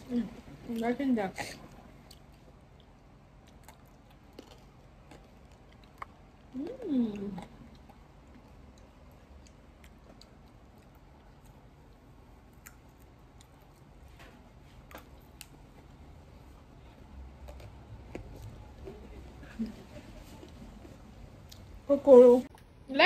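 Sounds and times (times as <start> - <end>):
person chewing food: 1.5 - 19.4.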